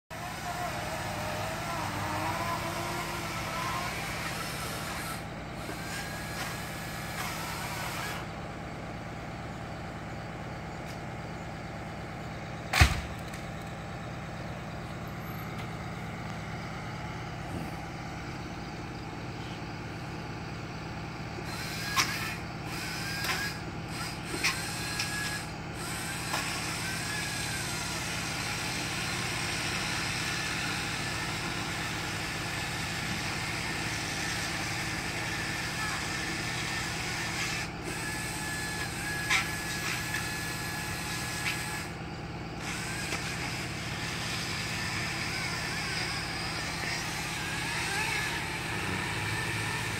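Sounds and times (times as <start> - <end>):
truck engine running: 0.1 - 49.9
loud sharp thump: 12.7 - 13.2.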